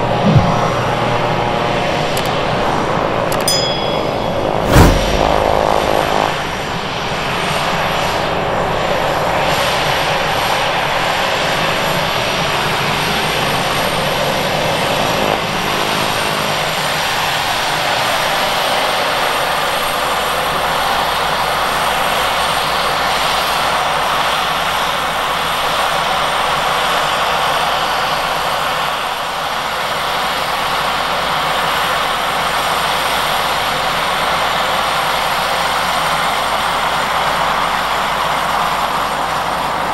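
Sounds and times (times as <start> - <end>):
turboprop engine running: 0.0 - 8.2.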